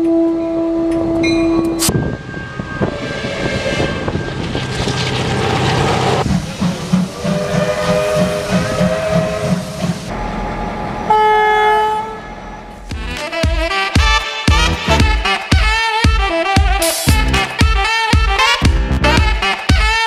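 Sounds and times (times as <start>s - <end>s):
train noise: 0.0s - 13.9s
steam exhaust chuffs: 2.8s - 11.2s
steam locomotive whistle: 7.0s - 10.1s, 11.0s - 12.6s
two-tone diesel horn blast: 7.2s - 20.0s.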